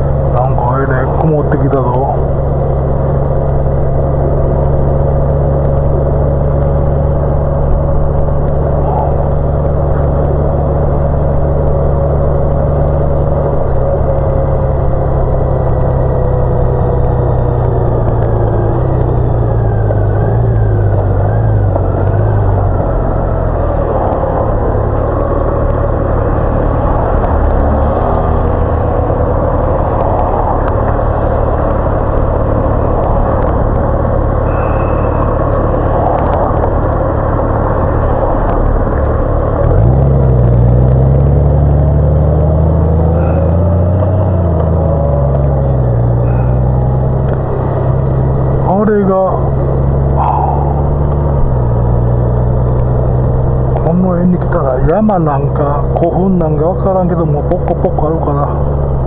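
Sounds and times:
motorcycle engine cruising: 0.0s - 59.0s
wind and road noise: 0.0s - 59.0s.

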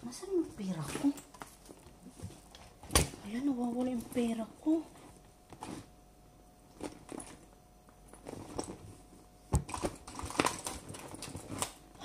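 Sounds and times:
rummaging through a handbag: 6.7s - 11.8s.

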